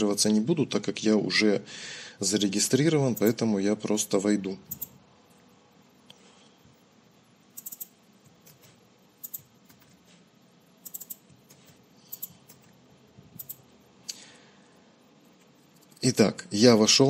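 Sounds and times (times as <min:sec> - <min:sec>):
computer keyboard keystrokes: 0:04.7 - 0:04.9, 0:07.6 - 0:10.0, 0:10.8 - 0:12.8, 0:13.4 - 0:13.6.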